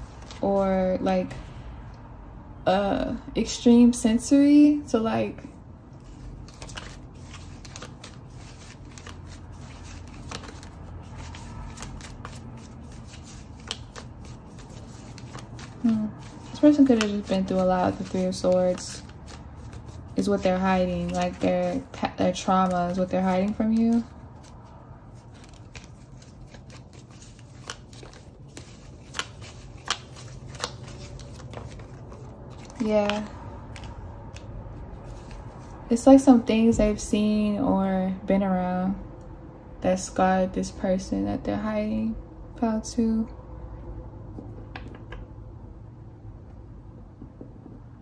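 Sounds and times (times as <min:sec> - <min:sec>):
cards being shuffled: 0:00.0 - 0:00.5, 0:06.0 - 0:35.8
low steady hum: 0:00.0 - 0:48.0.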